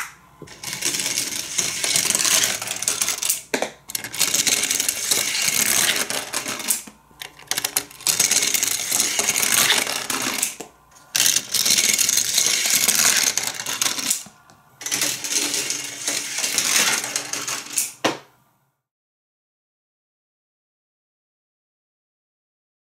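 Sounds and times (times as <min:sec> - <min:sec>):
toy cars rattling down plastic track: 0:00.0 - 0:18.0.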